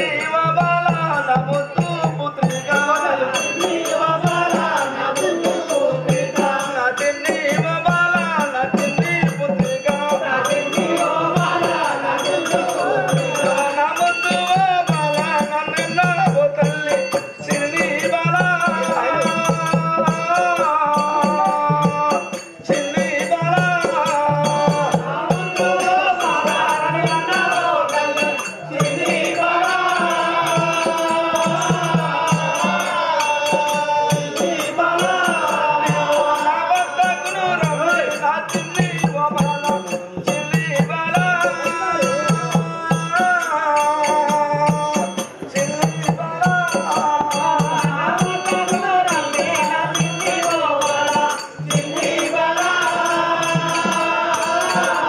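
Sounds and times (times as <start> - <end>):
drum beat: 0.0 - 55.0
jingling percussion: 0.0 - 55.0
person singing: 0.0 - 55.0.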